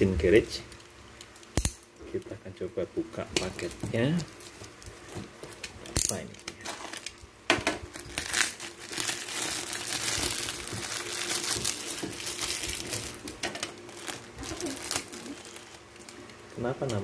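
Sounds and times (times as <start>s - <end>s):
plastic wrapping crinkling: 3.4s - 16.9s.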